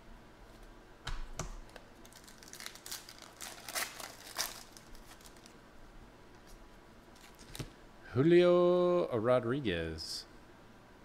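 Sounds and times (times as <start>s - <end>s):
faint handling of cards: 1.6s - 5.6s, 6.3s - 7.8s
wrapper crinkling and tearing: 1.7s - 5.6s, 7.2s - 7.7s.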